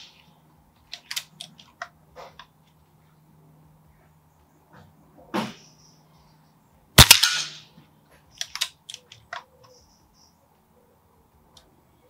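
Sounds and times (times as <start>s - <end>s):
air rifle shot: 7.0s - 7.7s
rifle action clicks: 8.4s - 9.5s.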